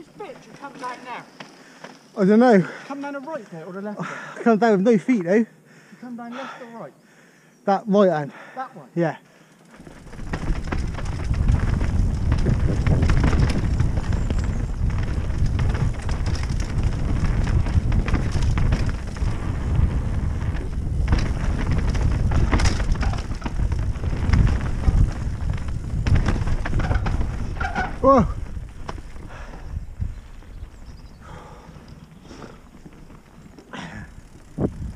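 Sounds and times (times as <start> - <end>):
bike knocking and clattering: 9.7 - 34.9
tyres rumbling over dirt: 9.7 - 34.9
wind buffeting microphone: 9.8 - 34.9.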